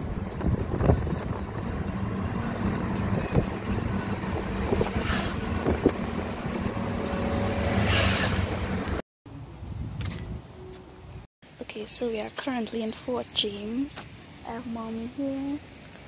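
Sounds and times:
wind through car window: 0:00.0 - 0:10.5
car engine and road rumble: 0:00.0 - 0:15.8.

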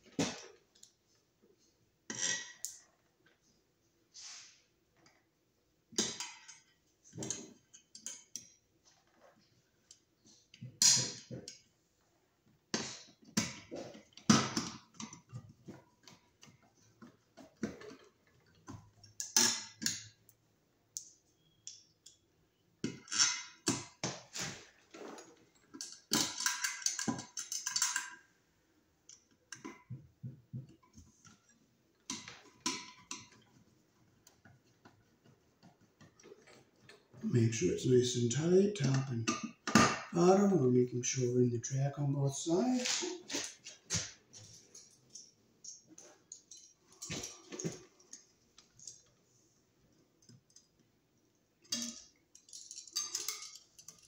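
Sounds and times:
plastic parts clicking and rattling: 0:22.8 - 0:28.3, 0:51.6 - 0:54.0.

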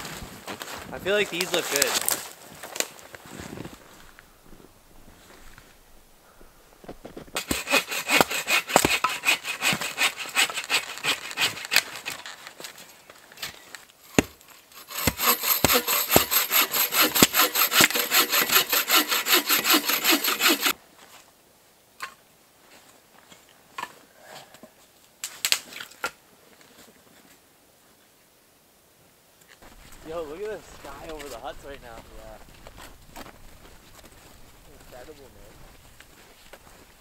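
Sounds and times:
hand saw cutting wood: 0:01.4 - 0:02.0, 0:07.4 - 0:12.2, 0:14.0 - 0:20.8, 0:30.1 - 0:31.5.

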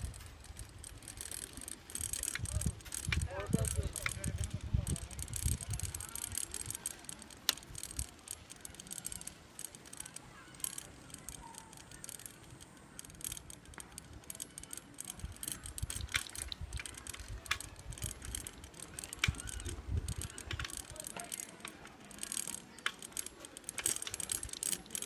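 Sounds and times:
bicycle parts rattling and clicking: 0:00.0 - 0:25.0
wind rumble on microphone: 0:02.4 - 0:06.2.

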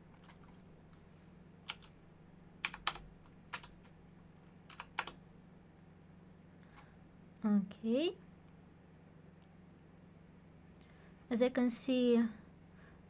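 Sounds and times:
faint low hum: 0:00.0 - 0:13.0
computer keyboard keys pressed: 0:00.1 - 0:00.6, 0:01.7 - 0:01.9, 0:02.6 - 0:04.0, 0:04.7 - 0:05.2.

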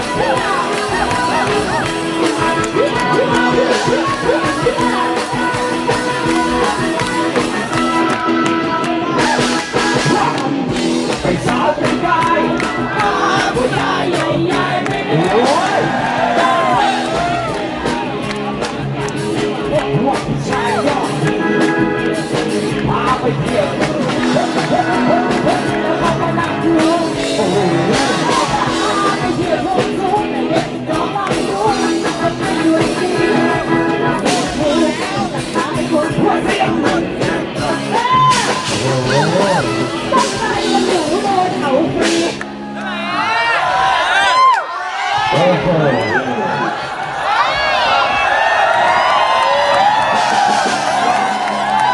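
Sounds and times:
woman singing into microphone: 0:00.0 - 0:10.6, 0:22.8 - 0:39.4, 0:40.0 - 0:42.4
live band playing: 0:00.0 - 0:44.5, 0:45.2 - 0:46.8, 0:47.4 - 0:51.9.

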